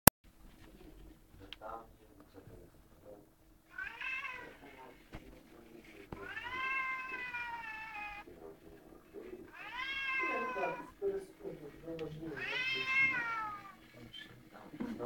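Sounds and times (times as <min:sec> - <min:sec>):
cat meowing: 0:03.7 - 0:04.9, 0:06.1 - 0:08.3, 0:09.2 - 0:11.0, 0:12.1 - 0:13.9.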